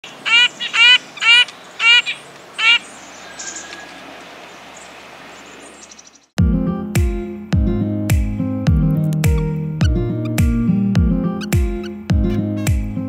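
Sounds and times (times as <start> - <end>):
nuthatch calling: 0.0 - 6.4, 11.4 - 12.0.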